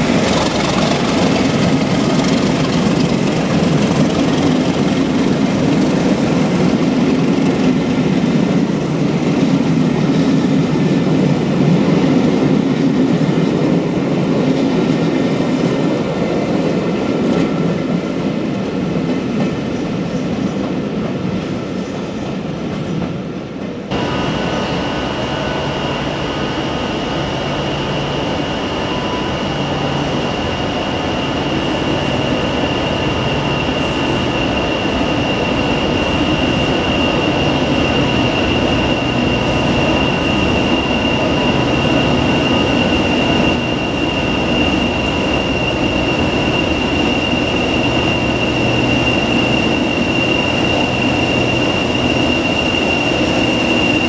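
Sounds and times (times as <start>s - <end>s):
departing train: 0.0s - 54.0s
diesel locomotive engine hum: 0.0s - 54.0s
steady high whistle: 23.9s - 54.0s.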